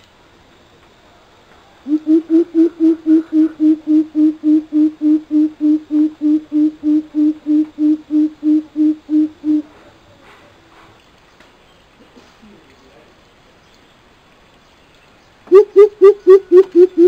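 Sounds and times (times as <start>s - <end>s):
coucal calling deep hoots: 1.8s - 9.7s.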